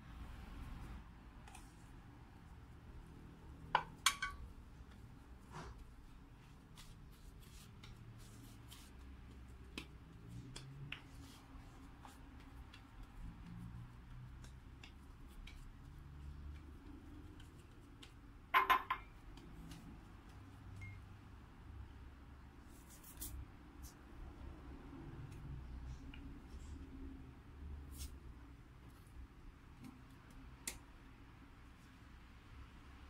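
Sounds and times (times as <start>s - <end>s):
hands patting dough on board: 3.6s - 21.0s.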